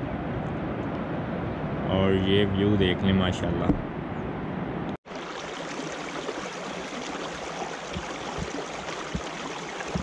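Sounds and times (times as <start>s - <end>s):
water rushing down channel: 5.1s - 10.0s.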